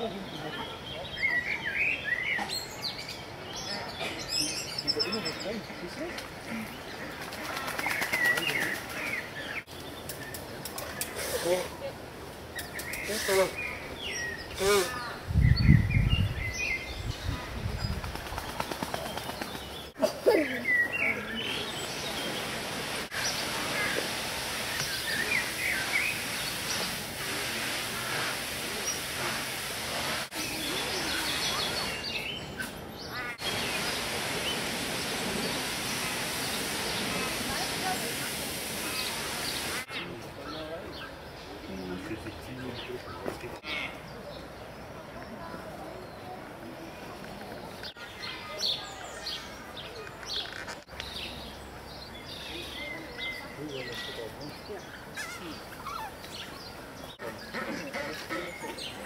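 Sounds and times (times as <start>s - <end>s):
birds chirping: 0.0s - 59.0s
steady outdoor hiss: 0.0s - 59.0s
background murmur: 37.1s - 59.0s.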